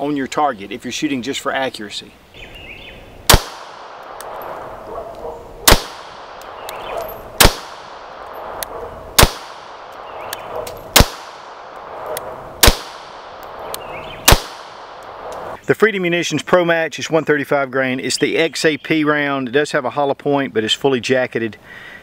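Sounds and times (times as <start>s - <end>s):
pistol shots with echo: 3.3s - 4.8s, 5.6s - 15.6s.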